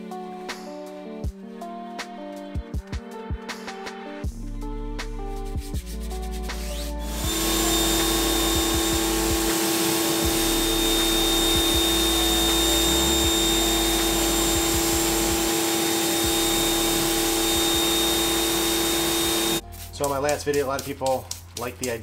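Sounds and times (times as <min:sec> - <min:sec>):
pressure washer motor whine: 0:07.1 - 0:19.6.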